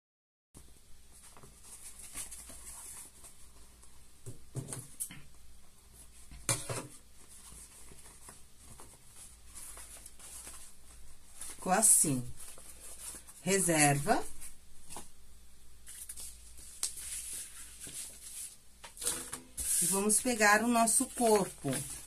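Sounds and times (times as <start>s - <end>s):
steady low hiss: 0.6s - 22.0s
soft handling rustles: 5.8s - 13.5s, 15.8s - 22.0s.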